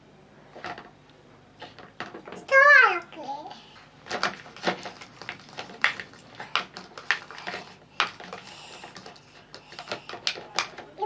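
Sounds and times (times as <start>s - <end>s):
plastic spoon scraping plastic bowl: 4.1s - 10.8s.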